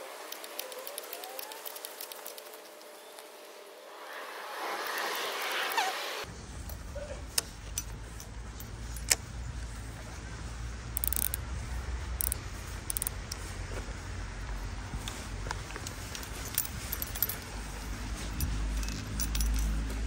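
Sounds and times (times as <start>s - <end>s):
fishing tackle rattling: 0.1s - 3.0s, 11.0s - 11.4s, 12.2s - 13.4s, 15.8s - 17.6s, 18.2s - 20.0s.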